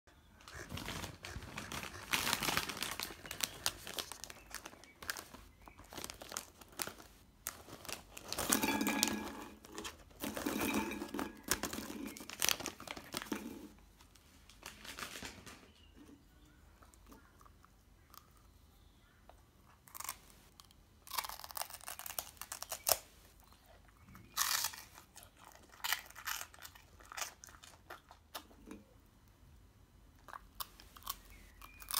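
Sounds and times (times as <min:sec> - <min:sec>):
plastic snack bag crinkling: 0:00.5 - 0:15.9, 0:24.2 - 0:28.2.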